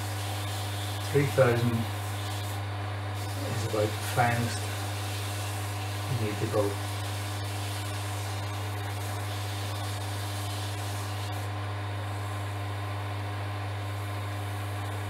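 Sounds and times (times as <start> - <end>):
sandpaper hissing on wood: 0.0 - 2.6, 3.2 - 11.5
lathe motor humming: 0.0 - 11.5.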